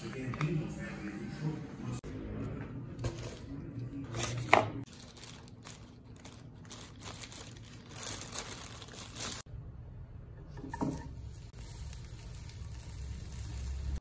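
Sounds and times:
plastic packaging crinkling: 4.1 - 9.5, 11.5 - 14.0.

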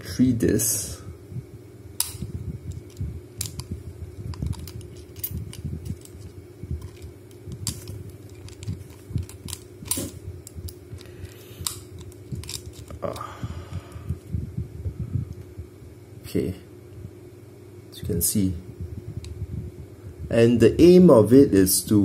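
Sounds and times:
low rubbing and handling noise: 2.0 - 15.6.

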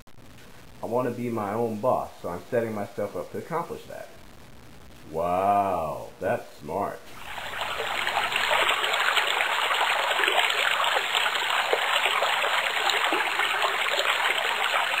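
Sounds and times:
stream water rushing: 7.2 - 15.0.

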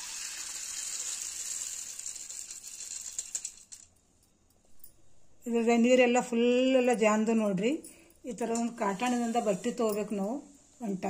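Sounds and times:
water and grains pouring into strainer: 0.0 - 3.8
grains rattling: 0.0 - 3.9.

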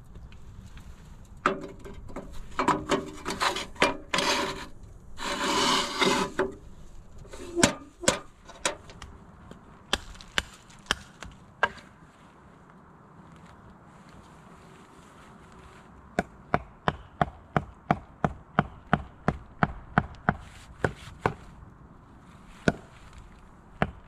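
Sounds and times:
metal tray scraping on wood: 1.5 - 6.6, 7.3 - 8.9.

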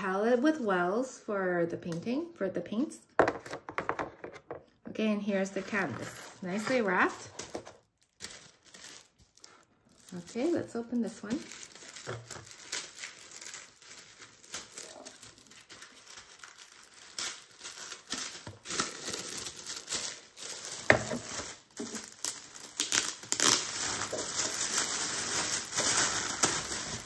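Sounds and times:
plastic wrapping crinkling and tearing: 5.4 - 27.0
plastic film snapping: 11.4 - 27.0.

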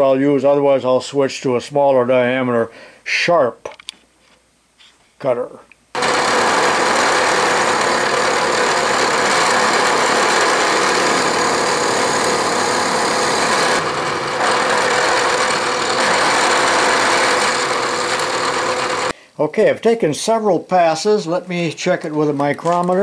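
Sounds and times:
milling machine cutting metal: 6.0 - 19.1.

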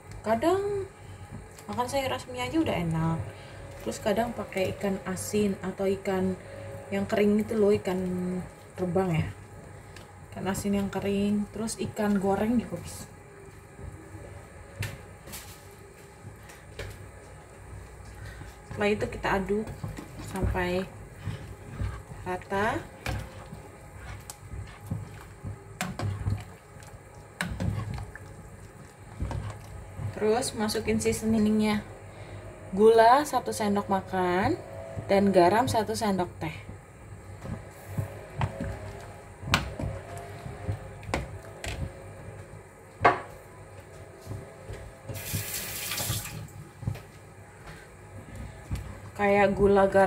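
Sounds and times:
liquid sloshing in a pot: 14.9 - 31.4, 36.8 - 43.0, 44.8 - 49.9
hiss like running water: 45.2 - 46.4.

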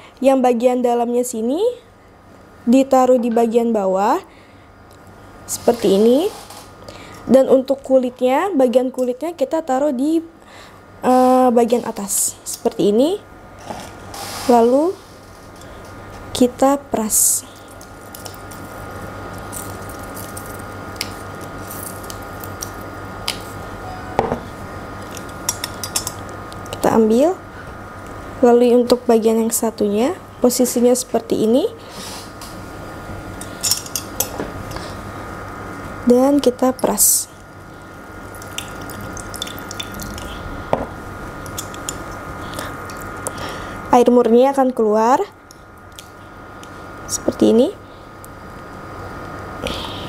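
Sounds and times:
steady background hum: 0.0 - 50.0
lemon juice dripping into a glass: 38.3 - 40.3.

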